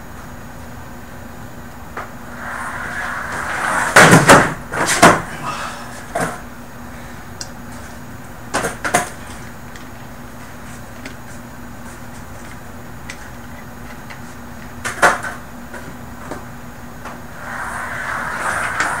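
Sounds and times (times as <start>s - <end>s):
skateboard wheels rolling on carpet: 2.1s - 5.1s, 17.1s - 19.0s.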